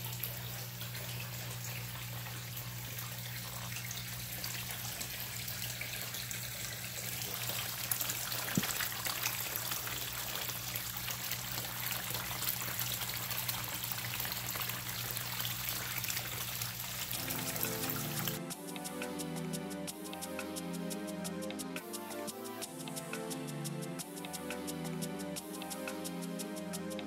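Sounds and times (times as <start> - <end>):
waterfall splashing into pond: 0.0 - 18.4.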